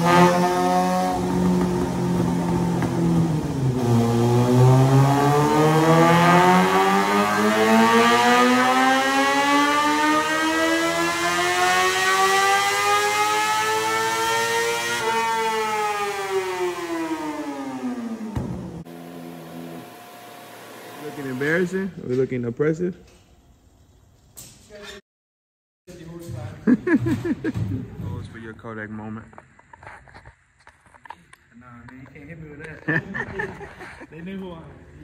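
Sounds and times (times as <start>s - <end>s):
motorcycle engine revving on dyno: 0.0s - 22.0s.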